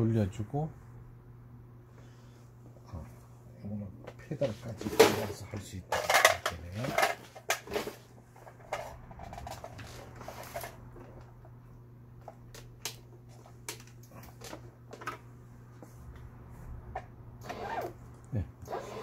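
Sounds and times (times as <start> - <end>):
sewing machine motor hum: 18.6 - 19.0.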